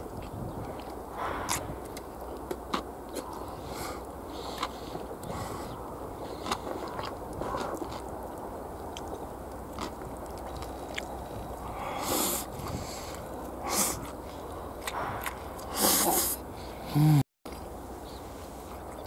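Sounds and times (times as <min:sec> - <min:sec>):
person chewing food: 0:00.1 - 0:16.5
noisy puffs: 0:11.6 - 0:17.2.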